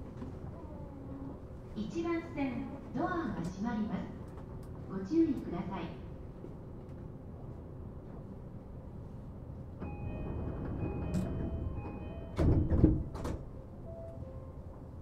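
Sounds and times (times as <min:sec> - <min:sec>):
train door-closing chime: 0:09.8 - 0:14.8
sliding doors thumping shut: 0:10.1 - 0:13.5.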